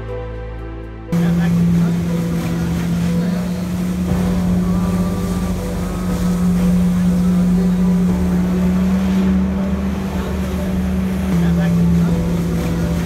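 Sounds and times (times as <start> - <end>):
jet ski engine drone: 1.1 - 13.0
rushing water hiss: 1.2 - 13.0.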